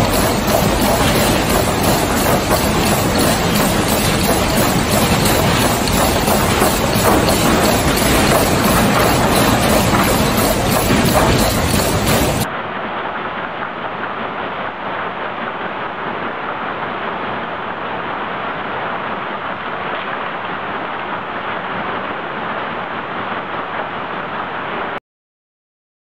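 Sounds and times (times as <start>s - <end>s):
conveyors running: 0.0s - 12.5s.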